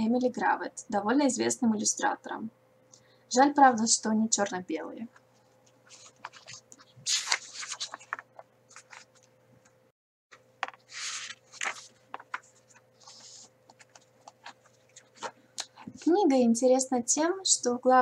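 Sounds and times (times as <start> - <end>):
book pages turning: 5.6 - 9.3, 10.6 - 15.9
book handling clicks and knocks: 5.9 - 9.2, 10.6 - 15.9.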